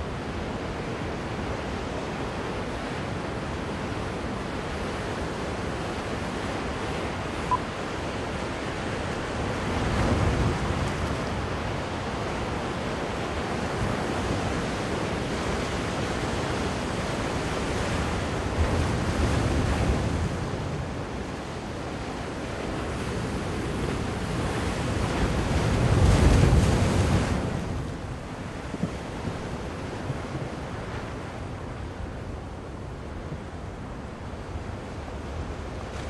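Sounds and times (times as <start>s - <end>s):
ocean surf breaking on beach: 0.0s - 36.0s
wind buffeting microphone: 8.7s - 12.3s.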